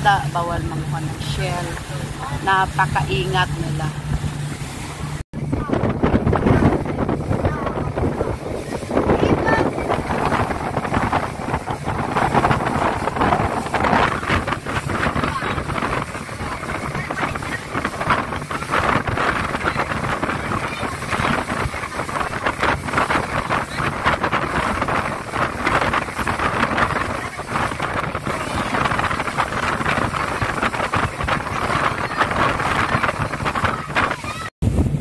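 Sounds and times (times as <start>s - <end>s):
motorboat engine drone: 0.0s - 35.0s
water rushing: 0.0s - 35.0s
wind buffeting microphone: 0.0s - 35.0s.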